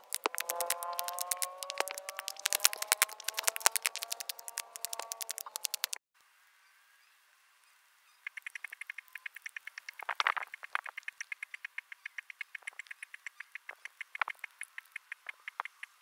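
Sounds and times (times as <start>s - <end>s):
caterpillar chewing a leaf: 0.0s - 6.0s, 8.3s - 11.9s.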